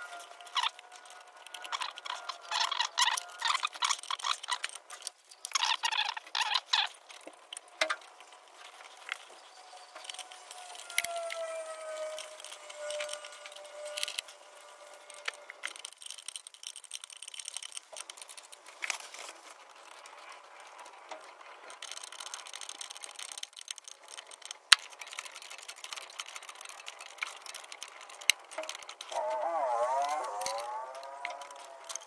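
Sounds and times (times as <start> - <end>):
wavering pitched squeak: 0.0 - 4.4, 9.1 - 15.7, 29.1 - 32.0
metal fuel lines clicking: 0.0 - 32.0.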